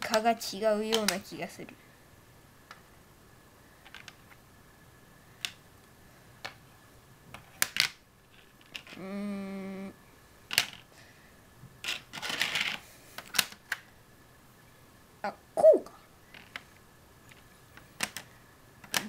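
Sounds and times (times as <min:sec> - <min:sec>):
person humming: 0:09.0 - 0:10.0, 0:15.6 - 0:16.0
plastic bricks clicking: 0:17.3 - 0:19.0.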